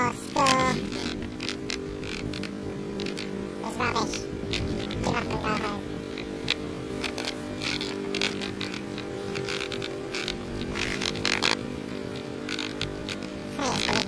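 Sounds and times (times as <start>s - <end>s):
rustling noise: 0.0s - 14.0s
small engine running: 0.0s - 14.0s.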